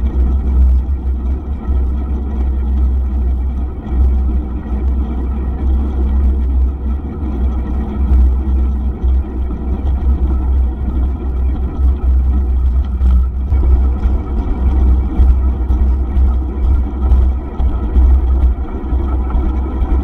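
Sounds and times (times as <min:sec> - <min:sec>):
bicycle tyres rolling on asphalt: 0:00.0 - 0:20.0
wind buffeting microphone: 0:04.0 - 0:20.0.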